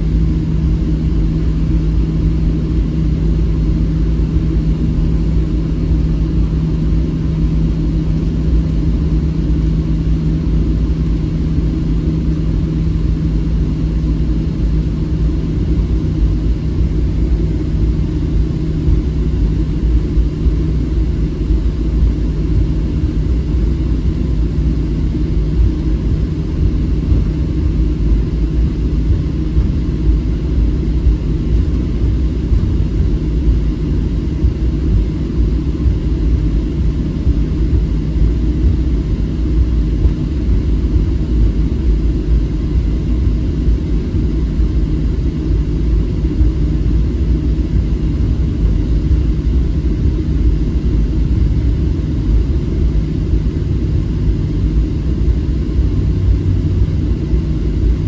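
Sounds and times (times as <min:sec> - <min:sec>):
jet engines rumbling at taxi: 0:00.0 - 0:58.0
low hum: 0:00.0 - 0:58.0.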